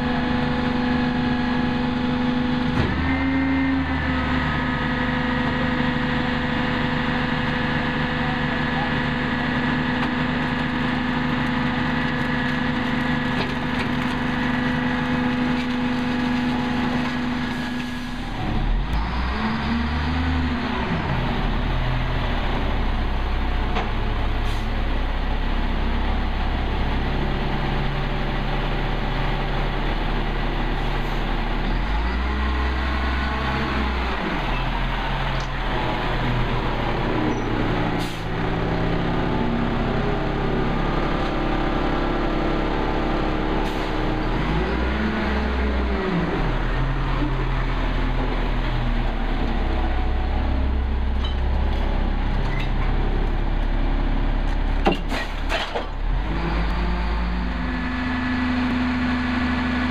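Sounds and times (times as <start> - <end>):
truck diesel engine revving: 0.0 - 54.8, 56.0 - 59.9.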